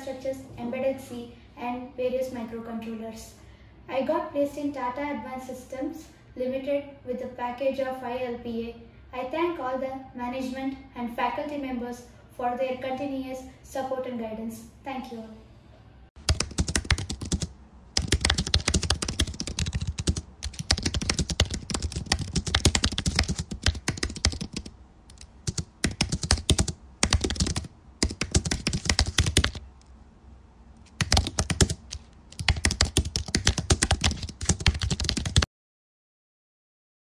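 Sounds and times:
keyboard typing: 16.2s - 29.6s, 30.8s - 35.5s.

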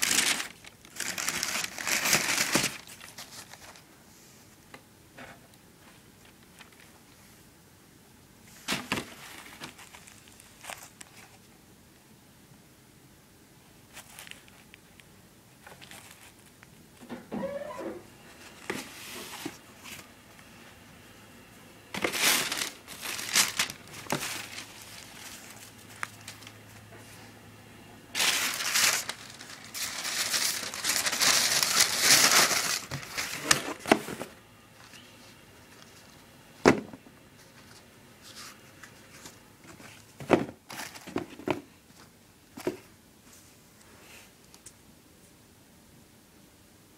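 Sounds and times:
tissue paper crinkling: 0.0s - 3.9s, 8.6s - 11.5s, 13.9s - 14.8s, 22.0s - 26.9s, 28.1s - 33.9s, 37.4s - 41.3s
knocks of shoes and box: 36.6s - 37.0s.

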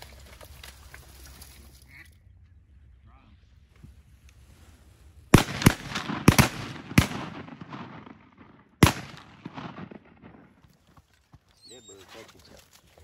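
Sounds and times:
shotgun shots with echo: 5.3s - 10.6s.

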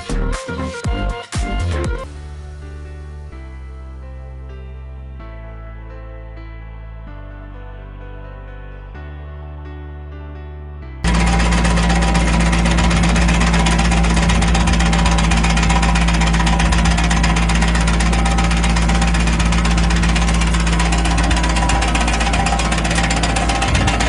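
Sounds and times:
tractor engine droning: 11.0s - 24.0s.

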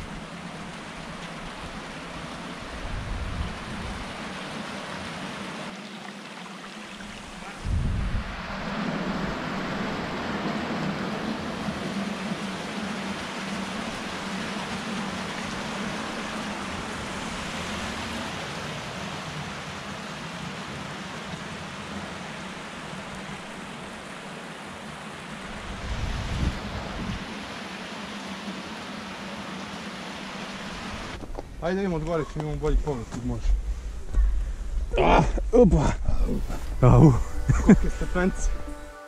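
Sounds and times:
waterfall rushing over rock: 0.0s - 31.8s.

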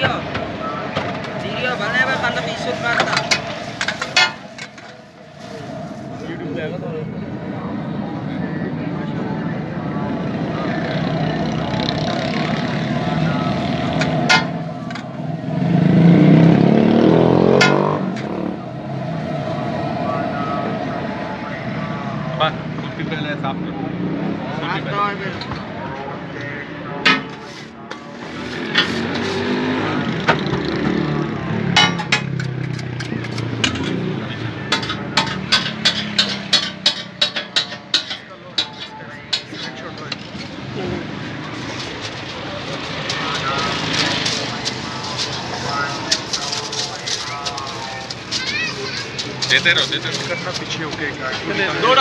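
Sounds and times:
street traffic: 0.0s - 52.0s
metal spatula striking griddle: 2.9s - 5.0s, 13.9s - 15.0s, 17.6s - 18.2s, 27.0s - 28.0s, 31.7s - 34.0s, 34.7s - 39.9s
vehicle engine revving past: 10.9s - 21.1s, 28.2s - 36.8s
spatula clicking on steel griddle: 34.7s - 39.7s.

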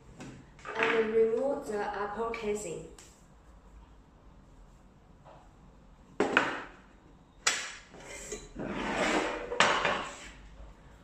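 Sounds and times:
casing scraping slide: 8.1s - 10.4s.

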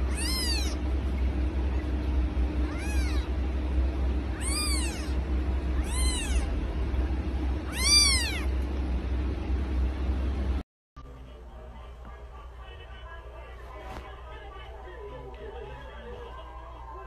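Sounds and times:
kitten mewing: 0.0s - 0.8s, 2.6s - 3.4s, 4.3s - 6.6s, 7.6s - 8.5s
steady low hum: 0.0s - 17.0s.

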